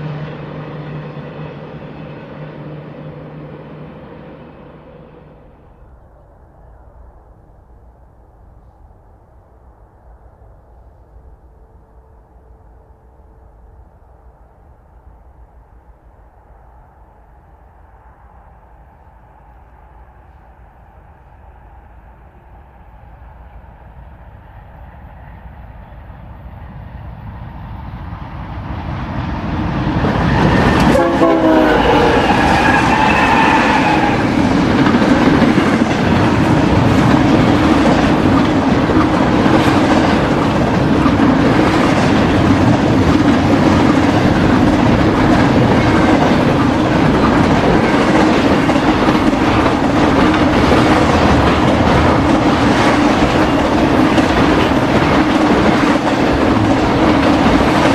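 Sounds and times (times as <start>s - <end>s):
train horn note: 0.0s - 5.8s, 30.1s - 34.4s
diesel locomotives passing: 0.0s - 57.9s
freight cars rumbling and clacking: 32.2s - 57.9s.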